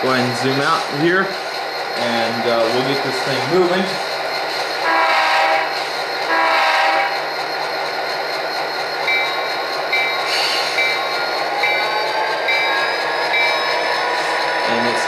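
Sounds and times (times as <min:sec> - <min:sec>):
locomotive bell ringing: 0:00.0 - 0:15.0
locomotive horn blast: 0:04.8 - 0:05.7, 0:06.3 - 0:07.2.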